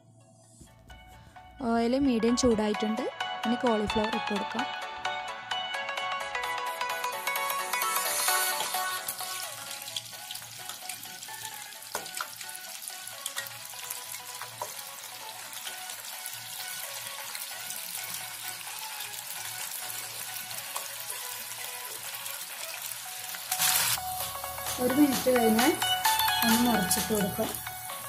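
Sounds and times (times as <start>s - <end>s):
deep-frying sizzle with crackles: 7.4s - 28.0s.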